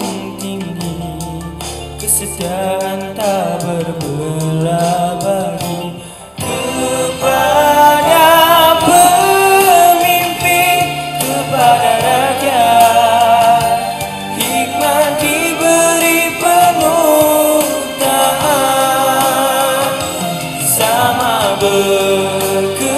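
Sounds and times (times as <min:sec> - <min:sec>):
backing track music: 0:00.0 - 0:22.9
man singing into microphone: 0:00.0 - 0:22.9.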